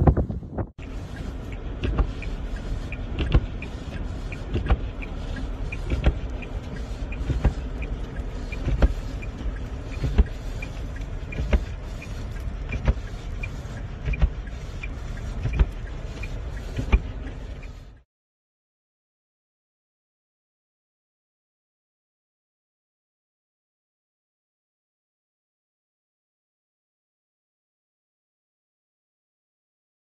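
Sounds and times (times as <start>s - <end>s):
car cabin hum: 0.0s - 18.0s
windshield wipers thumping: 0.0s - 18.0s.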